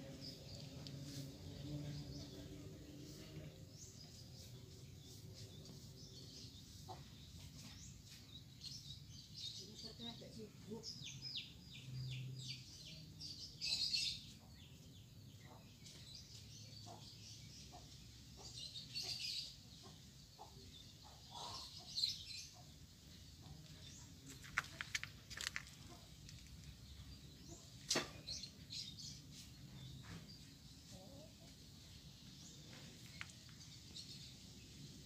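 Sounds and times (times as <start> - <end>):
small birds chirping: 0.0 - 35.0.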